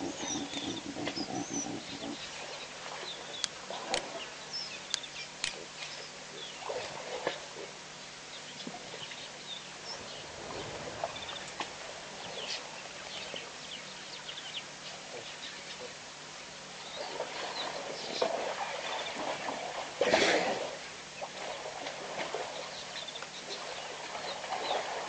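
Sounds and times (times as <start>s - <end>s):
birds chirping: 0.0s - 6.8s, 8.0s - 19.3s
outdoor background hiss: 0.0s - 25.0s.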